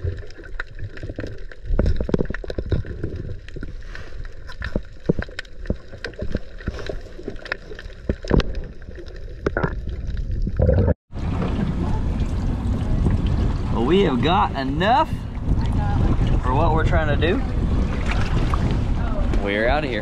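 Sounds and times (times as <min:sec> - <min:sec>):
bubbles: 0:00.0 - 0:14.1, 0:17.4 - 0:19.4
muffled underwater rumble: 0:00.0 - 0:20.0.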